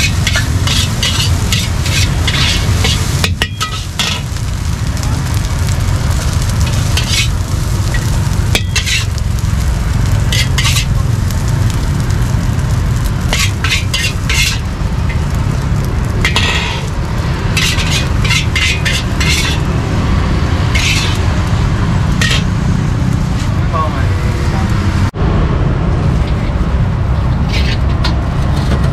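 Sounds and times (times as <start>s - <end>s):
spatula scraping metal wok: 0.0s - 4.4s, 6.4s - 9.2s, 10.2s - 11.0s, 13.3s - 15.4s, 16.2s - 22.6s, 27.4s - 28.8s
low rumble: 4.0s - 10.4s, 19.0s - 28.9s.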